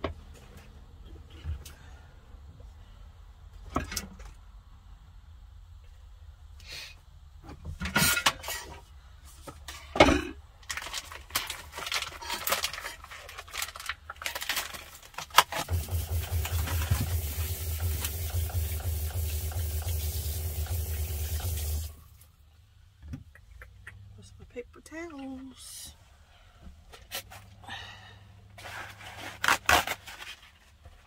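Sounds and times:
faucet running into sink: 15.6 - 22.0
low pump hum: 15.7 - 22.0.

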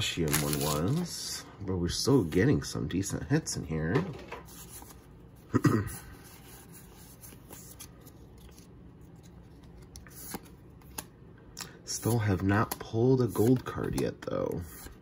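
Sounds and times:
cards sliding and rustling: 0.3 - 1.1, 4.4 - 5.1, 6.2 - 15.0.

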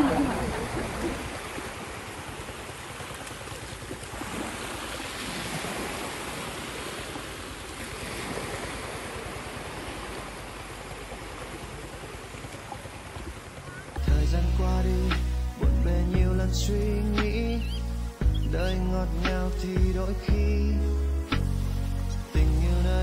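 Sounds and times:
small waves washing on beach: 0.0 - 14.1.

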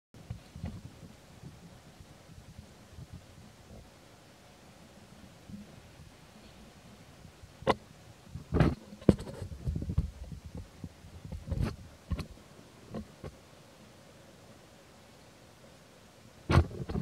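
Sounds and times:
scratchy rustling: 8.4 - 12.4
short knocks and dull thumps: 8.4 - 13.4.

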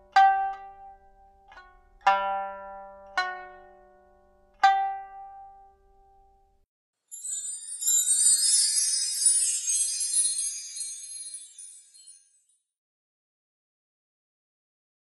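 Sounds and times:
plucked lute notes: 0.0 - 6.2.

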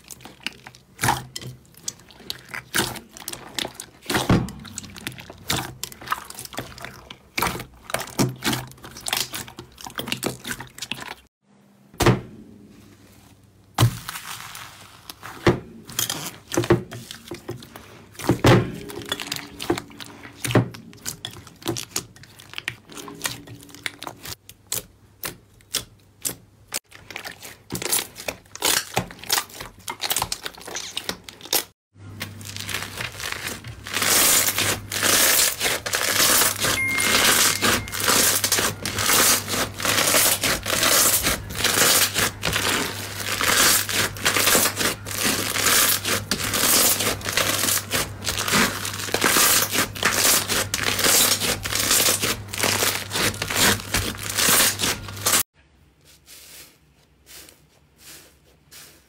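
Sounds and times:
slime crackling: 13.8 - 15.4, 16.0 - 55.4.

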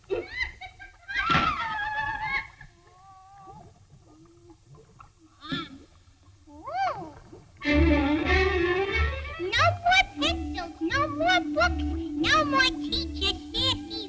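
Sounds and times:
cartoon vocal sounds: 9.2 - 14.0.

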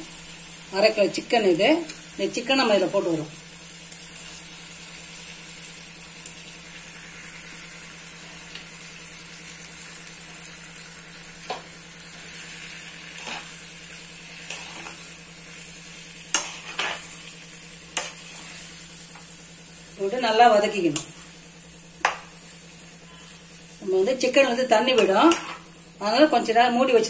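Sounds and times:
masala sizzling in a frying pan: 0.0 - 27.0.

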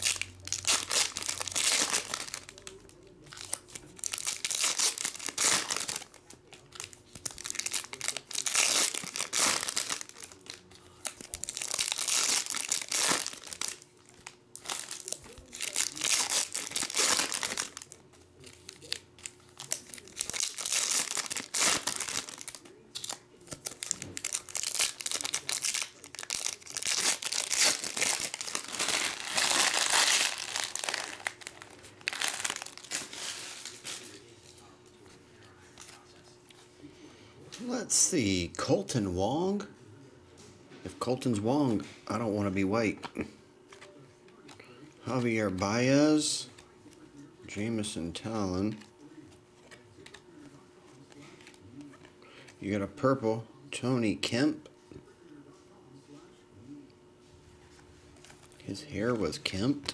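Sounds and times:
foil wrappers crinkling: 0.0 - 34.7.

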